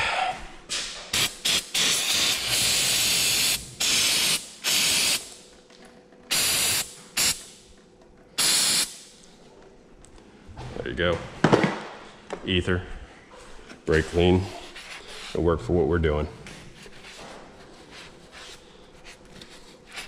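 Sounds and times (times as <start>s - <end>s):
aerosol spray hissing: 1.2s - 5.2s, 6.3s - 7.4s, 8.4s - 8.9s.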